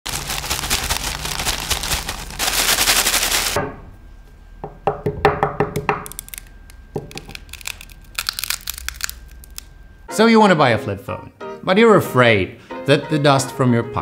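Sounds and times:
gritty crunches: 0:00.1 - 0:03.6, 0:06.1 - 0:09.8
phone rattling in bag of grit: 0:00.1 - 0:03.6, 0:07.1 - 0:09.6.

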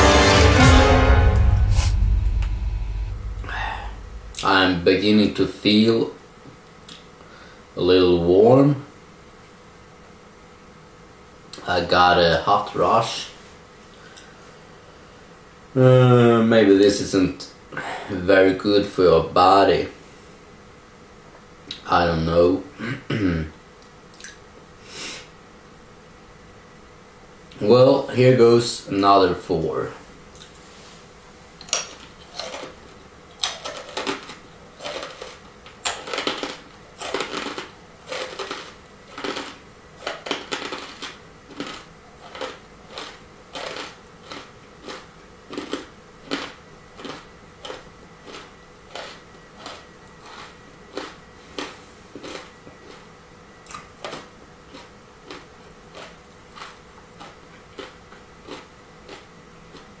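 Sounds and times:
dry crunches of chewing peanuts: 0:31.6 - 1:00.0.

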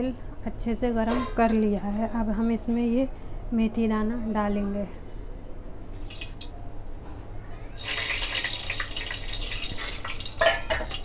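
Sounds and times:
seeds sizzling in hot oil: 0:07.8 - 0:11.0.

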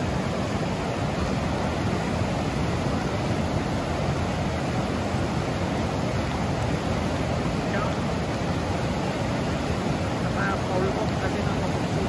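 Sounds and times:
river rushing over rocks: 0:00.0 - 0:12.0.

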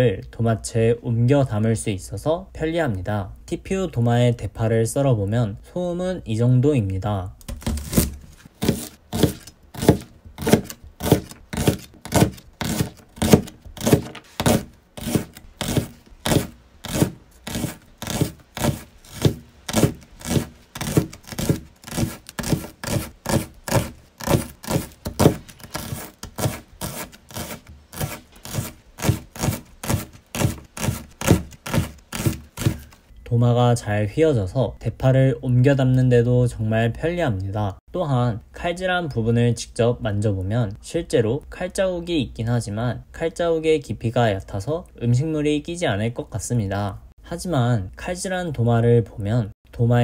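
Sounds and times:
knife chopping on cutting board: 0:07.6 - 0:32.9.

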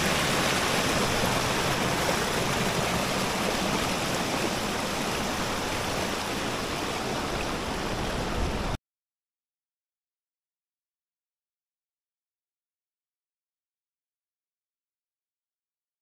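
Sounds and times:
water rushing down steps: 0:00.0 - 0:08.8.

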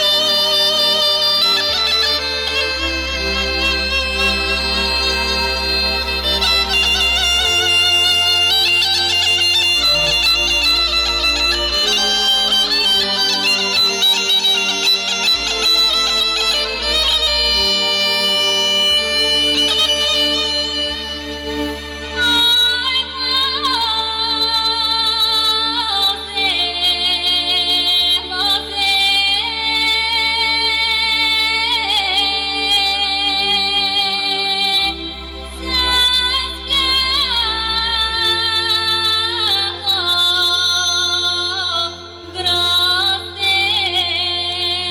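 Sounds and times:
bagpipe folk melody: 0:00.0 - 0:44.9
instrumental backing: 0:00.0 - 0:44.9
woman singing folk song: 0:22.2 - 0:34.9, 0:35.6 - 0:44.9.

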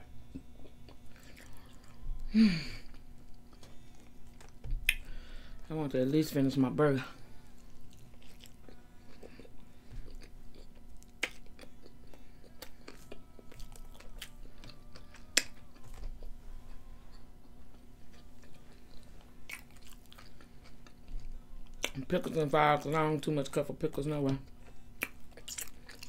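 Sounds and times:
faint steady hum: 0:00.0 - 0:26.0
person chewing with mouth clicks: 0:00.3 - 0:02.2, 0:02.9 - 0:05.1, 0:07.6 - 0:16.4, 0:17.1 - 0:22.0, 0:24.5 - 0:26.0.

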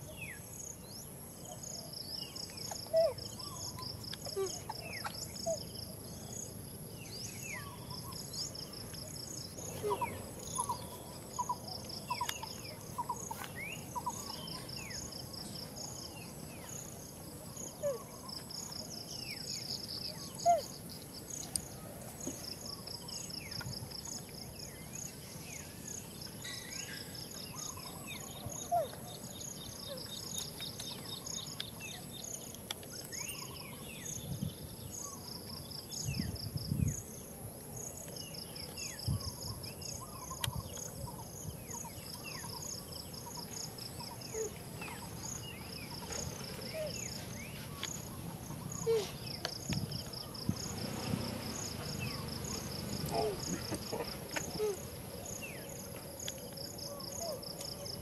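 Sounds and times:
insects chirping: 0:00.0 - 0:58.0
bird chirps: 0:07.1 - 0:16.9.

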